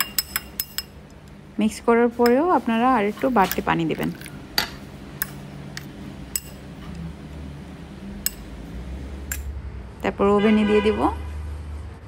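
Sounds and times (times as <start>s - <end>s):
spoon clinking against bowl: 0.0s - 1.0s, 4.6s - 6.6s.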